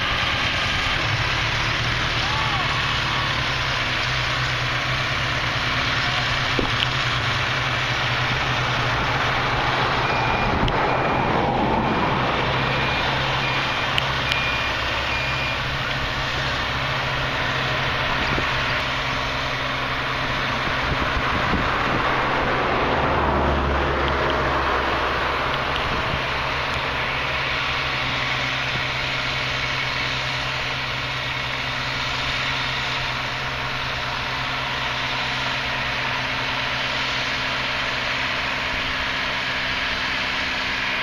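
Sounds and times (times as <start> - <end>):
truck engines running: 0.0 - 41.0
short high beeps: 9.9 - 11.4, 12.6 - 15.7.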